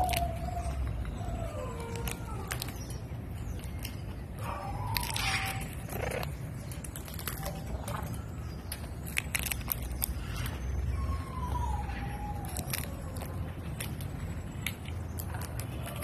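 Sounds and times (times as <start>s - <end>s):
parrot cracking peanut shells: 4.7s - 10.6s.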